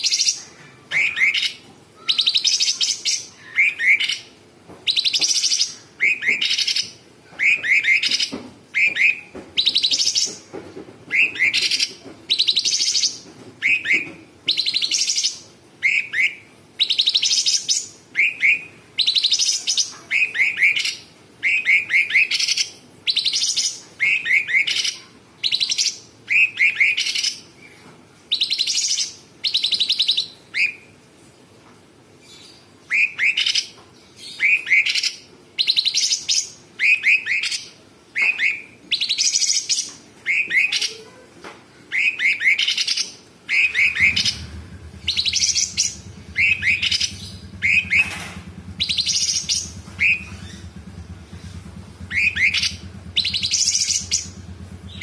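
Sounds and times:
bird whistling and buzzing song: 4.9 - 10.4, 11.1 - 27.4, 32.9 - 33.7, 34.3 - 41.0, 41.9 - 55.0.

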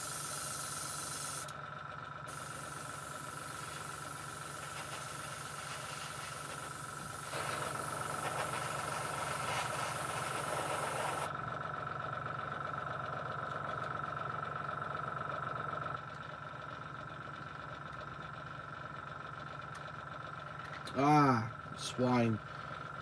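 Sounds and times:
airbrush spraying hiss: 0.0 - 1.5, 2.3 - 11.3
air compressor motor humming: 0.0 - 1.6, 2.3 - 18.5.

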